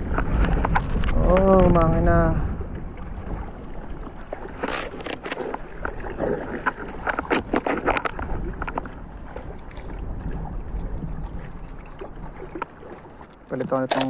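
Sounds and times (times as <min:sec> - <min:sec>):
wind rumble: 0:00.0 - 0:13.8
brief rustle: 0:04.6 - 0:05.6
fishing gear clicks and taps: 0:04.6 - 0:05.9, 0:06.6 - 0:14.0.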